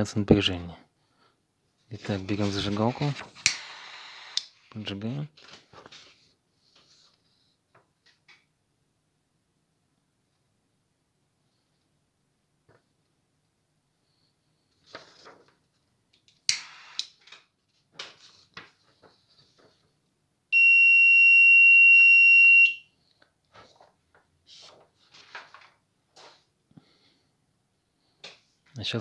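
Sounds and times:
sharp click: 16.5s - 17.1s
rustling: 17.6s - 20.0s, 23.5s - 26.5s
high-pitched alarm beep: 20.6s - 22.9s.

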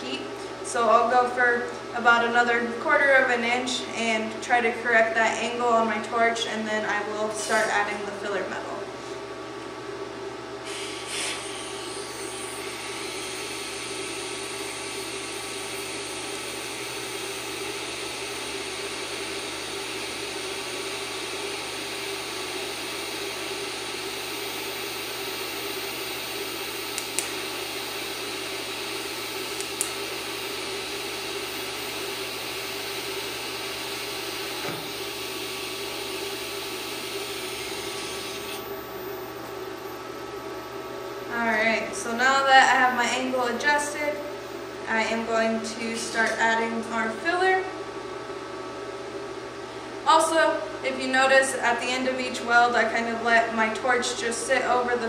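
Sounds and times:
welding arc hissing: 10.6s - 38.7s.

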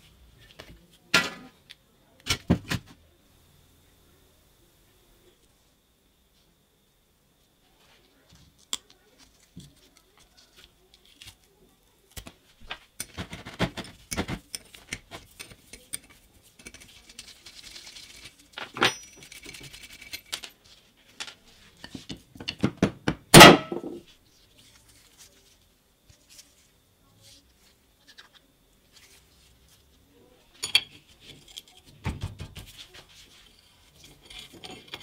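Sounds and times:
soft rustling and scraping: 7.4s - 22.3s, 23.9s - 35.0s.

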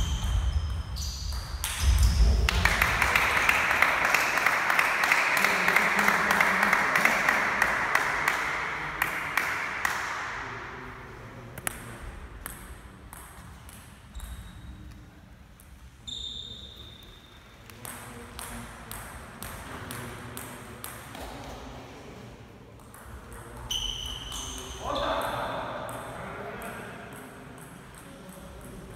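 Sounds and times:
table tennis ball bouncing: 0.0s - 4.1s, 11.6s - 14.6s, 17.7s - 21.3s, 22.8s - 24.8s
people clapping: 2.4s - 10.5s
brief high squeaks: 16.0s - 17.3s.

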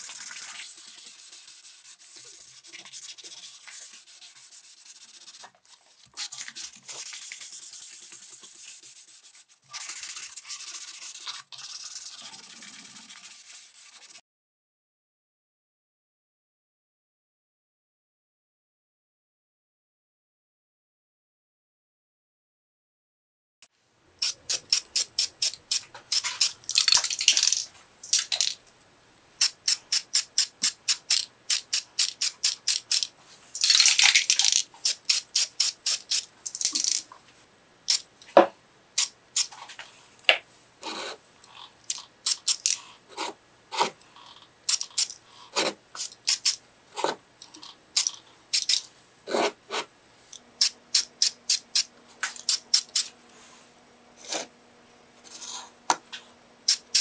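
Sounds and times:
spray paint hissing: 0.0s - 5.5s, 6.2s - 14.2s, 24.2s - 28.6s, 29.4s - 37.0s, 39.0s - 39.5s, 42.2s - 42.7s, 44.7s - 45.2s, 46.0s - 46.6s, 48.0s - 48.8s, 50.6s - 51.9s, 52.5s - 53.1s, 56.7s - 57.0s
spray can ball rattling: 24.2s - 28.6s, 29.4s - 37.0s, 41.9s - 42.8s, 44.7s - 45.2s, 46.0s - 46.6s, 48.0s - 48.8s, 50.6s - 53.1s, 56.7s - 57.0s.

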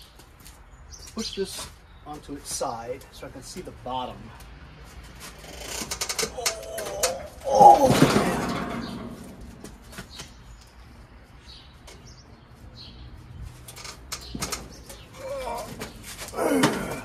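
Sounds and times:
lawn tractor knocks and rattles: 5.5s - 10.3s, 13.7s - 17.0s
lawn tractor tipping clunk: 5.8s - 9.7s.

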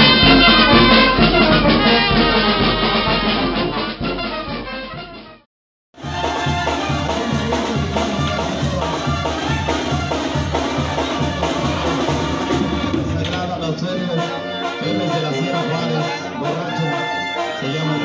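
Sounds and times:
drums keeping a beat: 0.0s - 4.4s, 6.0s - 14.8s
tuba bass line: 0.0s - 5.4s, 6.0s - 18.0s
brass band playing: 0.0s - 18.0s.

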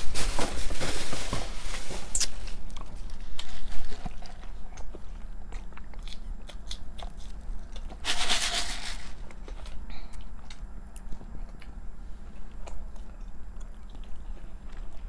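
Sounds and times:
chewing french fries: 2.1s - 8.3s, 9.2s - 15.0s.

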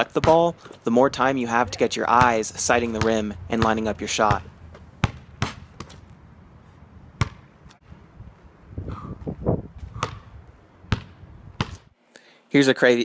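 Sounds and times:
basketball bouncing on asphalt: 0.1s - 0.9s, 1.8s - 6.2s, 7.2s - 7.6s, 9.2s - 11.9s.

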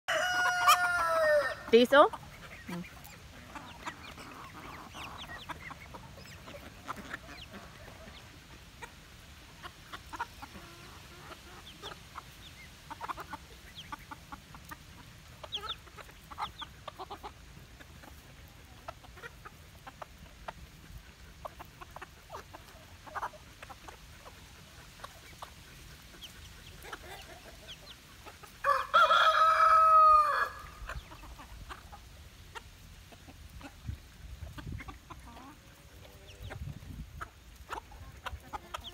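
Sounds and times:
rooster crowing: 0.1s - 1.7s, 28.6s - 30.8s
chickens clucking: 0.1s - 38.9s.

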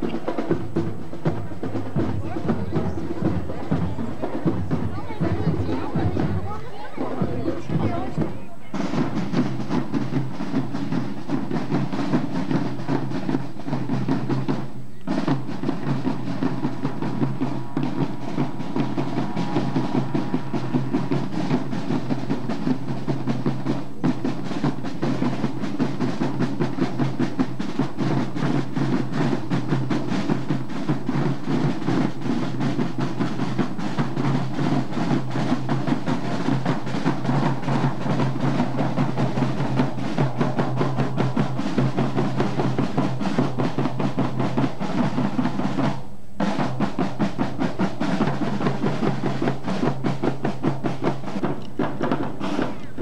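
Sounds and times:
snare and tenor drums beating: 0.0s - 53.0s.

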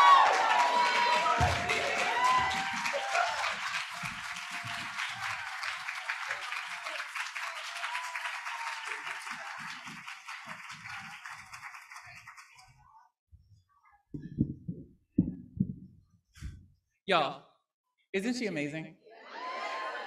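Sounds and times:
audience whooping: 0.0s - 9.9s
audience applauding: 0.0s - 12.7s.

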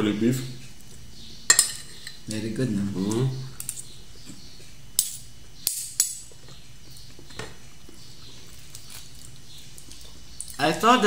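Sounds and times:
cutlery clinking on plates: 1.5s - 2.2s.

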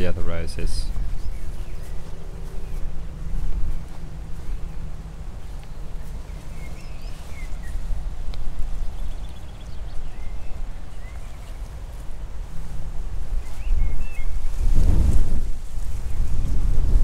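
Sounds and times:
wind rumbling on microphone: 0.0s - 17.0s
faint bird chirps: 5.5s - 7.9s.

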